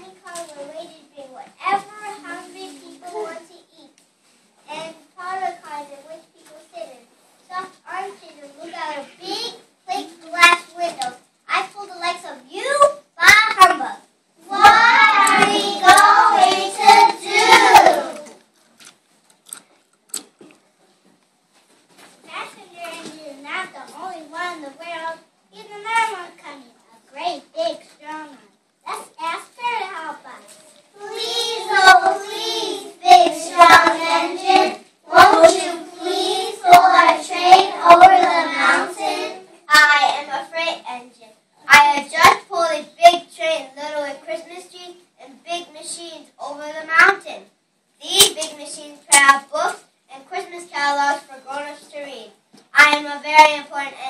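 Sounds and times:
young children singing: 14.4s - 18.4s, 31.0s - 40.4s
sharp claps: 14.6s - 18.1s
faint clicks and taps: 17.8s - 24.0s.

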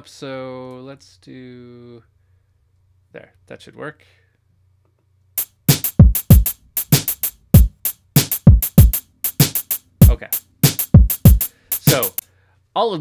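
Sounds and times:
drum machine beat: 5.4s - 12.2s.

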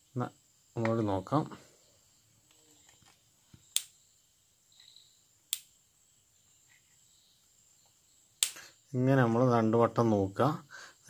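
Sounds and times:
electric sparking snaps: 3.7s - 4.0s, 5.5s - 5.8s, 8.4s - 8.7s.

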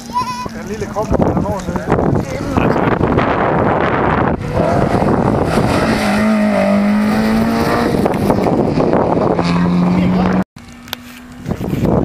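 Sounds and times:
rally car engine passing: 3.0s - 10.9s.

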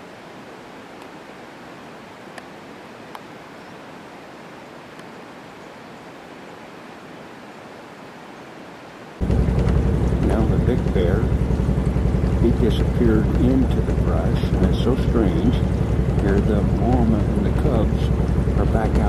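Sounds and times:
steady outdoor hiss: 0.0s - 19.0s
faint clicks: 2.3s - 2.5s.

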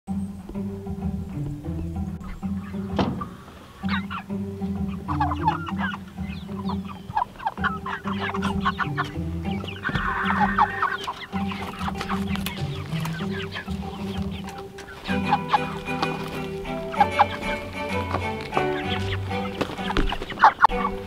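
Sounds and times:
background music with bass line: 0.1s - 21.0s
chickens clucking: 0.1s - 21.0s.

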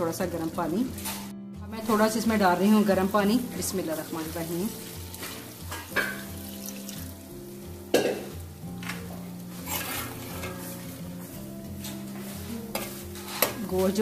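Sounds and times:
gravy sizzling: 0.0s - 12.3s
soft background music: 0.0s - 14.0s
water pouring into pot: 3.5s - 7.3s.

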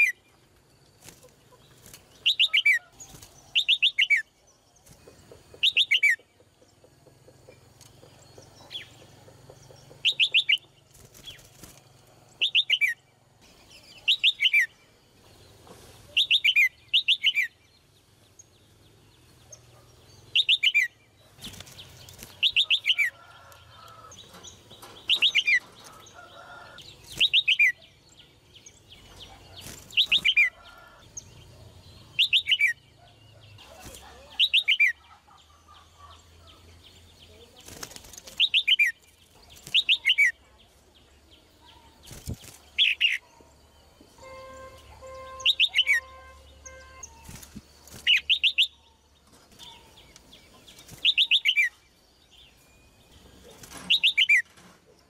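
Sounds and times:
bird calling: 5.0s - 11.4s, 44.2s - 49.0s, 53.0s - 54.5s.

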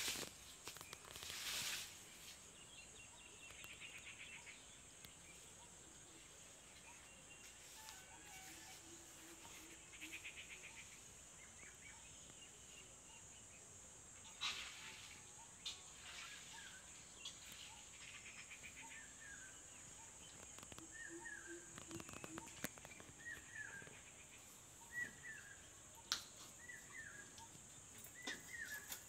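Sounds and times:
bird chirps and trills: 14.1s - 29.0s.

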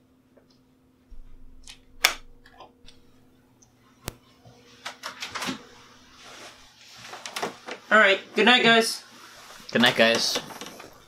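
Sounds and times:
faint steady hum: 0.0s - 11.0s
bedding rustling: 5.4s - 11.0s.

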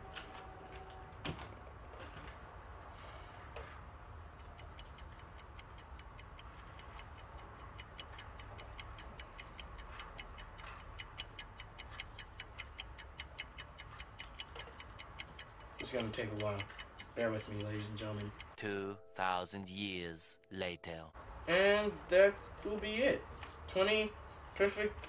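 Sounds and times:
rapid clock ticking: 4.3s - 18.6s.

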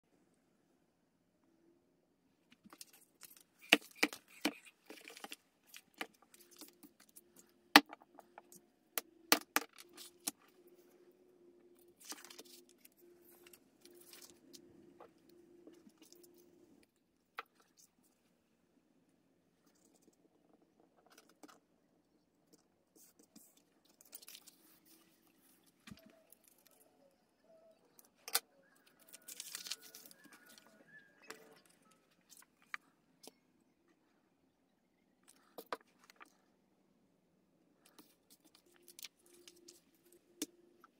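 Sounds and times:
paper rustling: 29.0s - 32.8s.

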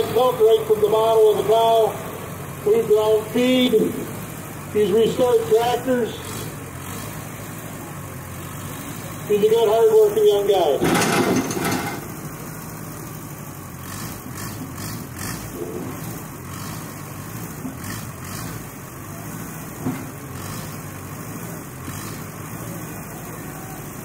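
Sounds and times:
tractor engine running: 0.0s - 24.0s.

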